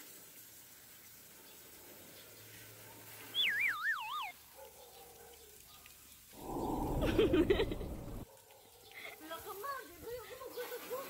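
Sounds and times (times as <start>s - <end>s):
falling wavering whistle tone: 3.3s - 4.4s.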